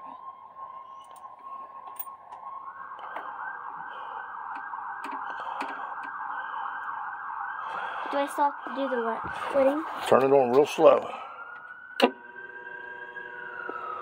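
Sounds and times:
electronic siren: 0.0 - 14.0.

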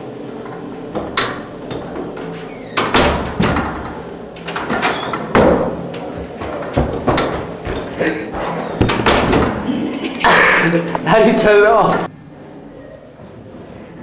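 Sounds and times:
swing doors knocking and clunking: 0.9 - 7.9, 8.8 - 9.7
door squeak: 1.7 - 3.6, 4.5 - 5.7.

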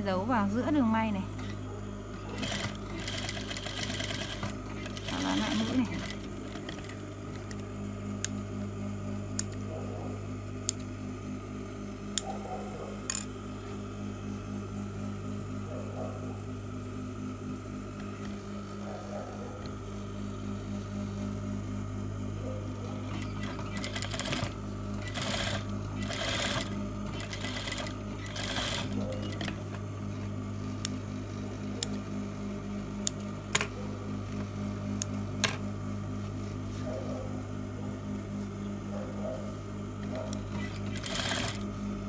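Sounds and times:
sewing machine stitching: 2.2 - 7.0, 23.0 - 29.6, 40.2 - 41.6.

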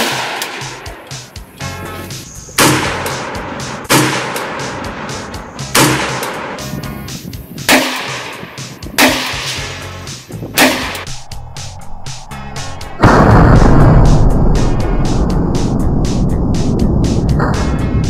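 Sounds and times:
background music with steady beat: 0.0 - 18.0
rifle gunshots: 2.6 - 6.6, 7.7 - 8.4, 9.0 - 9.7.

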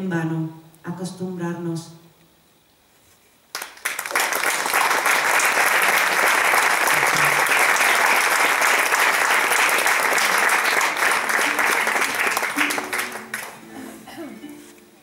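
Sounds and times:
audience applauding: 3.5 - 14.0.

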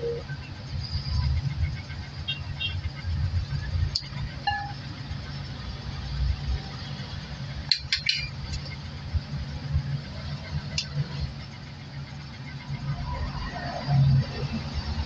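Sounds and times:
low steady rumble: 0.0 - 15.0
glass bowl clinking on metal strainer: 4.5 - 4.8.

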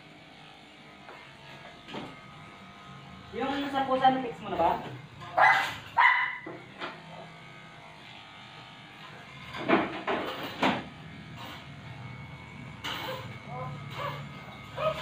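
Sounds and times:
electric clippers humming: 0.0 - 15.0
dog crying: 5.4 - 6.5, 13.0 - 15.0.

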